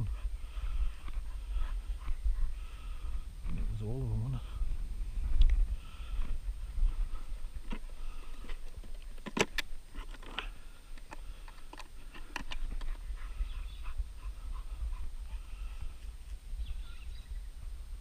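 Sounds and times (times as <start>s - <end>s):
low rumble of movement: 0.0s - 18.0s
sharp handling clicks and knocks: 7.6s - 13.0s
birds chirping faintly: 10.4s - 17.8s.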